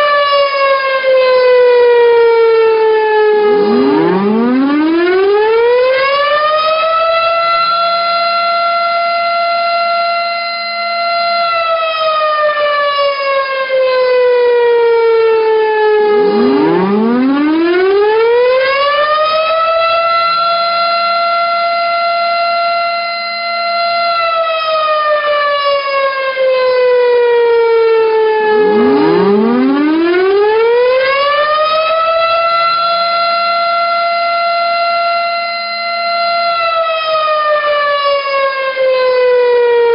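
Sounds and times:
siren wailing: 0.0 - 39.9.

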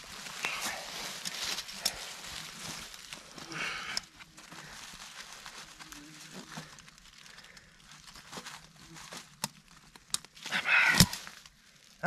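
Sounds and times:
dry leaves rustling: 0.0 - 12.0.

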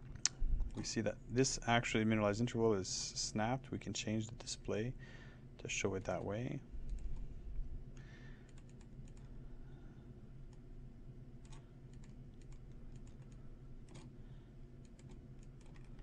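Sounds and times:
low steady hum: 0.0 - 16.0
computer mouse clicks: 11.4 - 14.1, 14.8 - 16.0.

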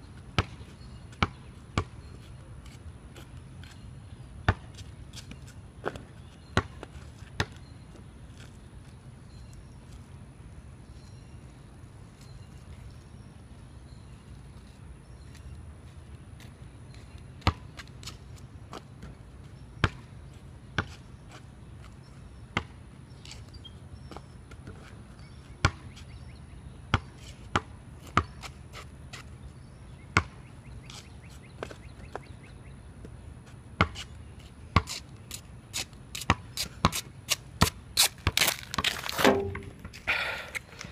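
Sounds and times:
basketball bouncing on concrete: 0.4 - 2.2, 4.5 - 4.9, 6.6 - 7.6, 17.4 - 17.9, 22.6 - 22.8, 25.6 - 25.9, 26.9 - 28.5, 30.2 - 30.4, 33.8 - 34.0, 36.2 - 40.1.

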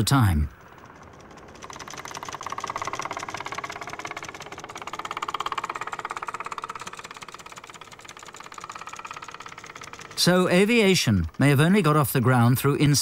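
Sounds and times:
biplane piston engine pulsing: 0.0 - 13.0.

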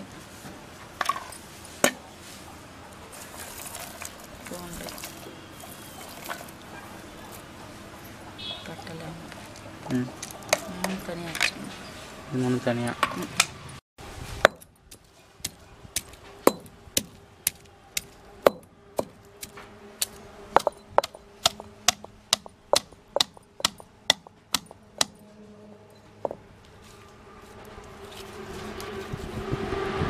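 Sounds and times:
stone pestle knocking in mortar: 15.4 - 19.2, 20.6 - 25.2.

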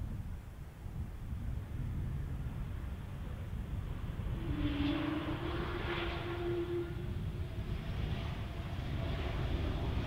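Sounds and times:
jet engines rumbling: 2.7 - 10.0.

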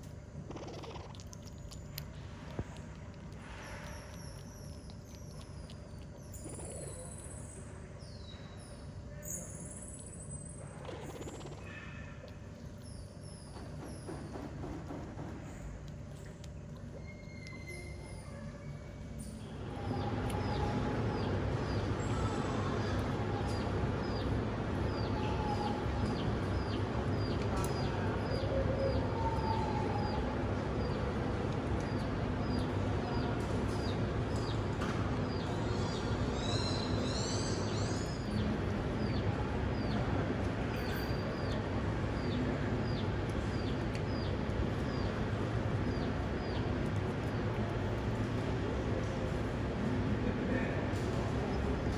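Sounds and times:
steady low hum: 0.0 - 51.9
bird chirping: 35.3 - 40.0.

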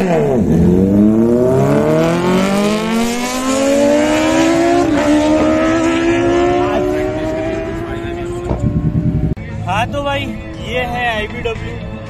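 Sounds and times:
vehicle engine accelerating: 0.0 - 9.4.

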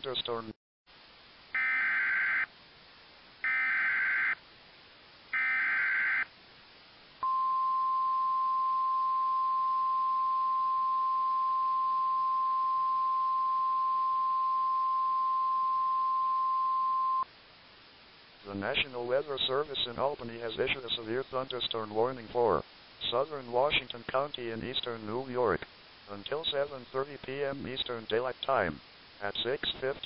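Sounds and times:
steady alarm tone: 3.4 - 4.4, 5.4 - 6.3.

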